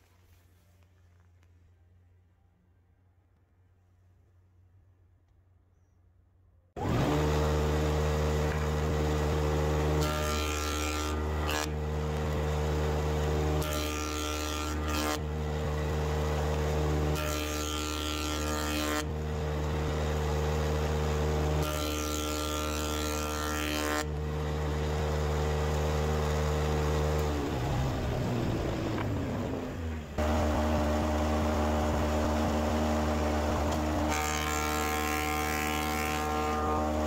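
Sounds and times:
jointer cutting wood: 6.8s - 37.0s
jointer machine hum: 6.8s - 37.0s.

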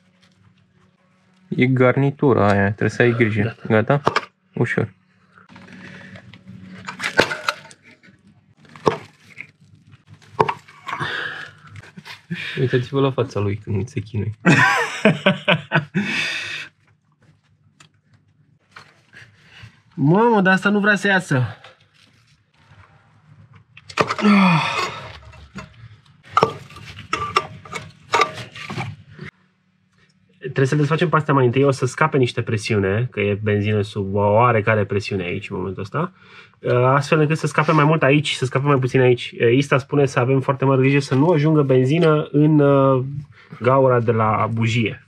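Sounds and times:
plastic cracking: 5.5s - 12.1s
tools clicking and knocking: 26.3s - 28.8s.

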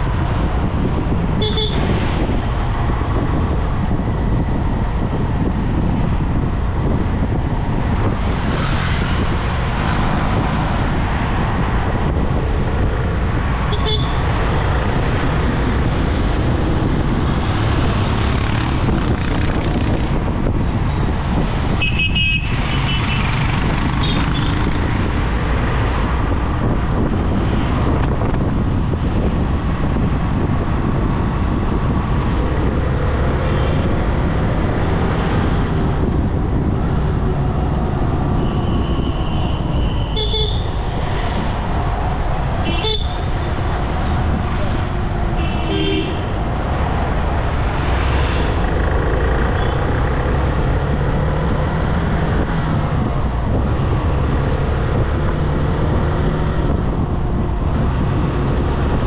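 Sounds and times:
road traffic noise: 0.0s - 59.0s
vehicle horn toots: 38.5s - 40.7s, 45.4s - 46.3s.

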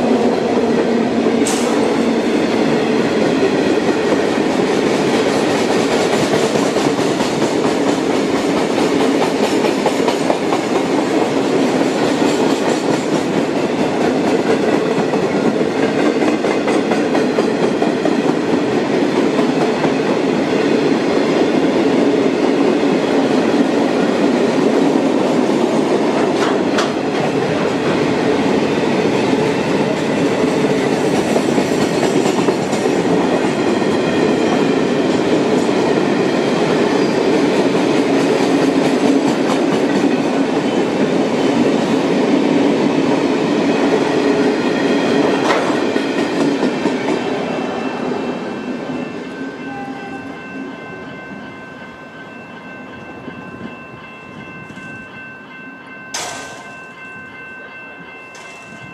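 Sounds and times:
train wheels rumbling on rails: 0.0s - 58.9s
wheels clicking over rail joints: 45.4s - 46.8s.

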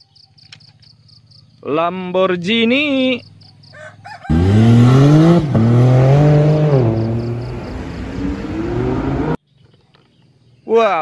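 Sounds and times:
sports car engine revving: 4.3s - 9.4s.

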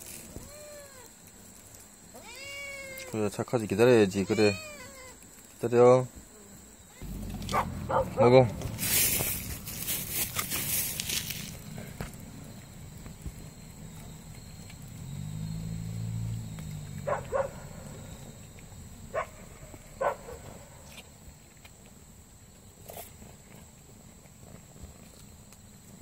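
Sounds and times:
cats crunching dried fish: 7.0s - 8.0s.

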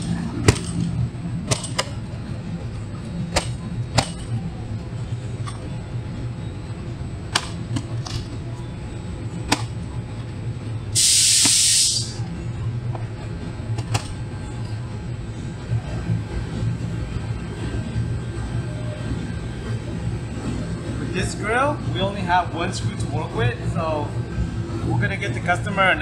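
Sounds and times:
steady low hum: 0.0s - 26.0s
loud hiss: 11.0s - 12.2s.

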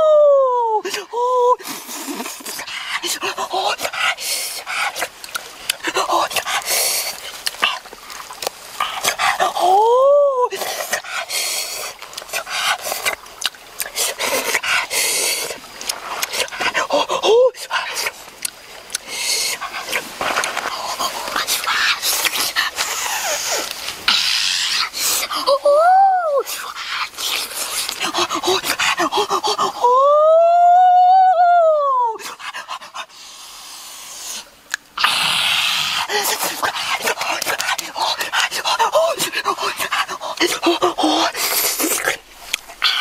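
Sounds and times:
man's high vocal oooh: 0.0s - 1.6s, 9.6s - 10.6s, 16.9s - 17.6s, 25.4s - 26.5s, 29.1s - 32.2s
mouth clicks and smacks eating: 4.6s - 9.5s, 12.0s - 16.8s, 17.9s - 24.2s, 34.7s - 35.0s, 36.3s - 43.0s.

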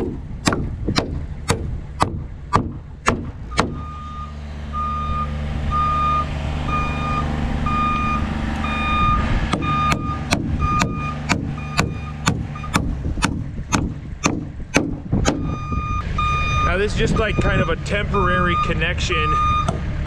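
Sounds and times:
engine running: 0.0s - 20.0s
machine warning beeper: 3.5s - 12.9s, 15.4s - 19.7s.

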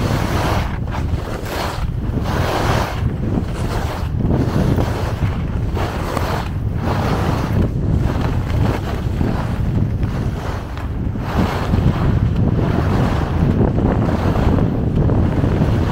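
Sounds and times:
skis scraping on snow: 0.0s - 15.9s
wind buffeting microphone: 0.0s - 15.9s.

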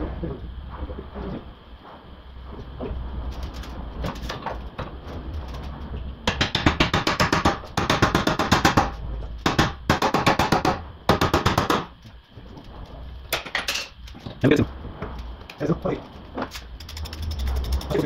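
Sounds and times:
ratchet wrench clicking: 16.5s - 18.0s.

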